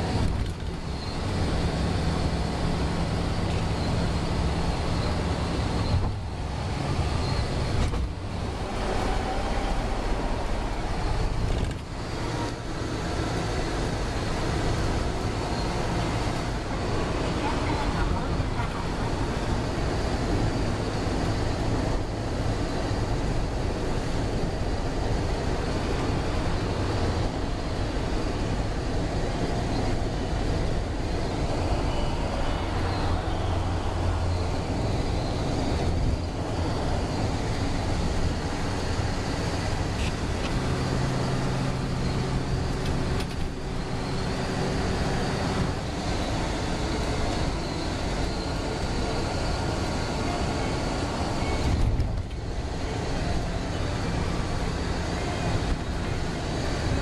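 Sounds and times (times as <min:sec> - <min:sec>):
vehicle interior rumble: 0:00.0 - 0:57.0.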